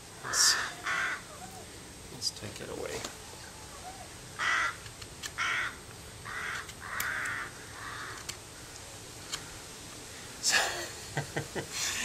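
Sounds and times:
crow cawing: 0.2s - 1.7s, 3.8s - 4.8s, 5.4s - 8.7s.

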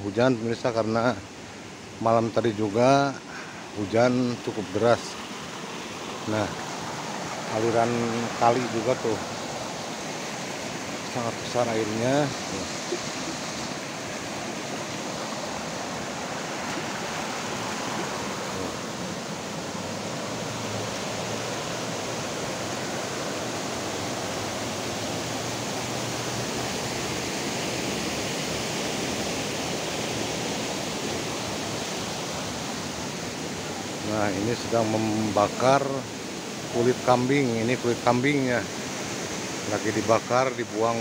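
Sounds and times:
creek rushing over rocks: 0.0s - 41.0s.

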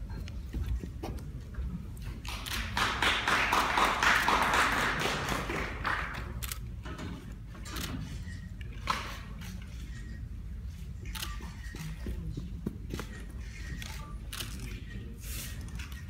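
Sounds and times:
audience applause: 2.3s - 6.4s.

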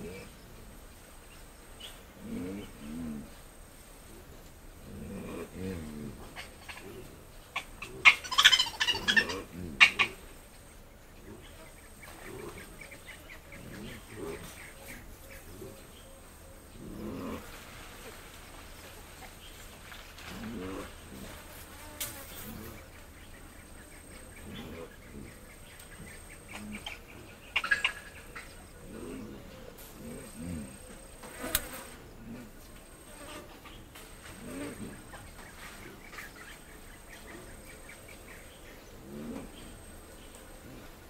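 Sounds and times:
mandrill grunting call: 1.8s - 3.4s, 4.8s - 10.4s, 11.2s - 17.6s, 20.2s - 21.4s, 22.3s - 41.0s
faint high insect or bird tone: 5.1s - 17.6s, 18.5s - 41.0s
high-pitched animal call: 7.6s - 10.2s
mandrills grunting: 24.2s - 32.6s.

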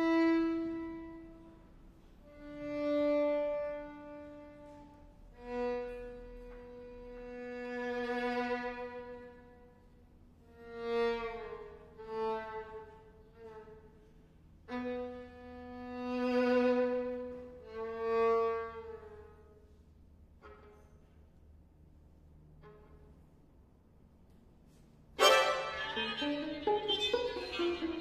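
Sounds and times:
violin playing low bowed notes: 0.0s - 24.0s, 24.6s - 28.0s.

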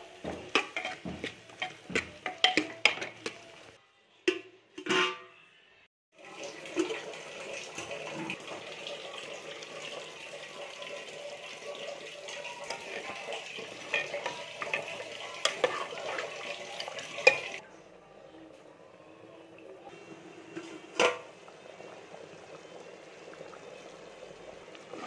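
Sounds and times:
metal utensils clinking: 0.5s - 3.6s, 12.3s - 17.6s.

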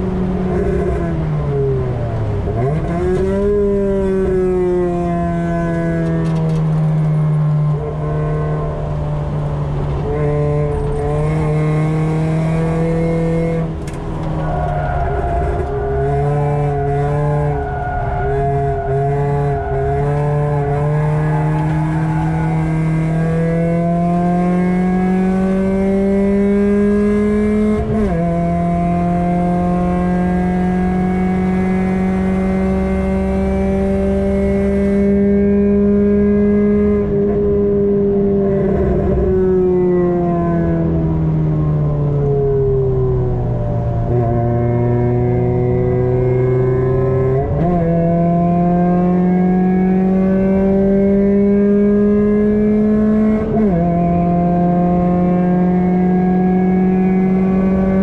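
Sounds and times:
car engine at speed from cabin: 0.0s - 58.0s.

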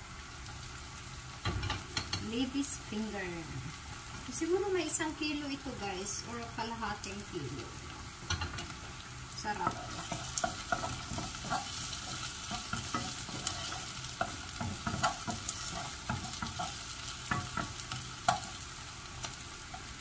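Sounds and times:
onions sizzling in a saucepan: 0.0s - 20.0s
wooden spatula scraping pan: 9.6s - 18.4s.

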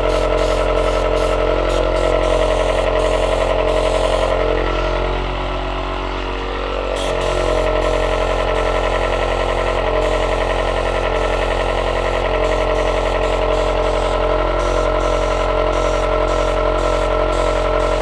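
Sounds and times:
air compressor motor humming: 0.0s - 18.0s.

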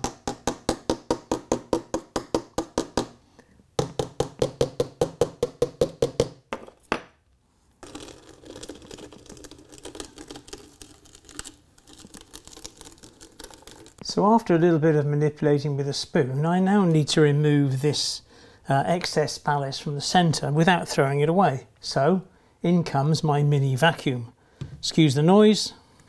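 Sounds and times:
scratching of loose ballast: 7.8s - 14.1s.

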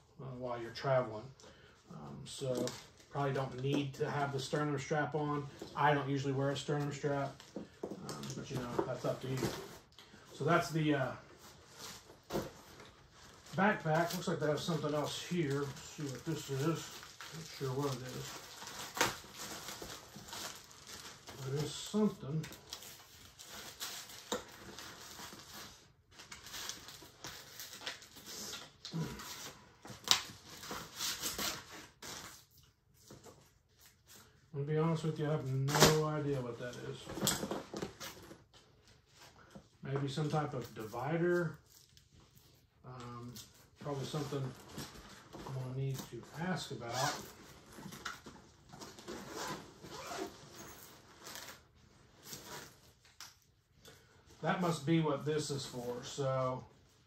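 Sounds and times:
cardboard rustling and scraping: 6.6s - 10.7s
nylon fabric rustling: 49.1s - 51.4s.

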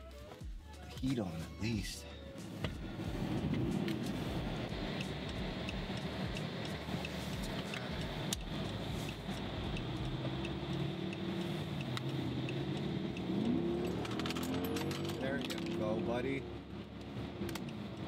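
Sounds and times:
car engine running: 2.4s - 18.0s
faint even ticking: 2.8s - 14.0s.

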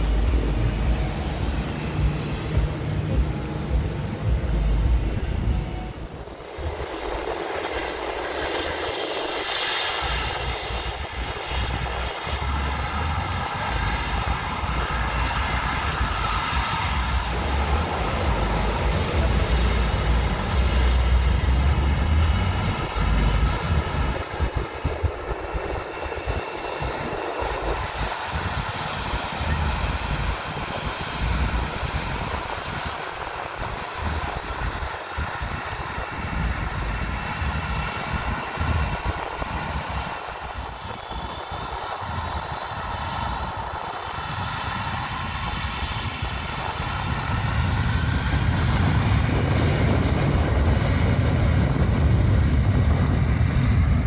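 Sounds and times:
jet engines whining: 0.0s - 54.0s.

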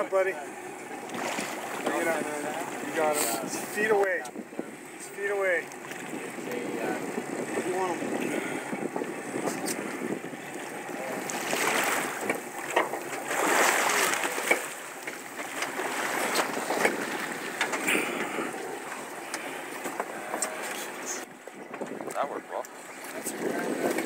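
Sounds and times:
water splashing against boat: 0.0s - 24.0s
wind noise: 3.4s - 12.6s, 21.2s - 24.0s.

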